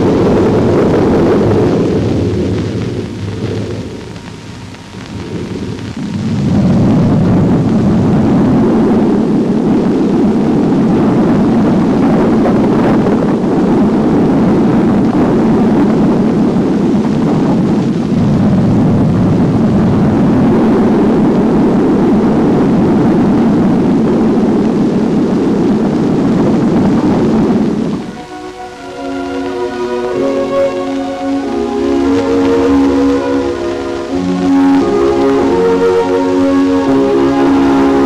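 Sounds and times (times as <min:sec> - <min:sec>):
low rumbling roar: 0:00.0 - 0:38.0.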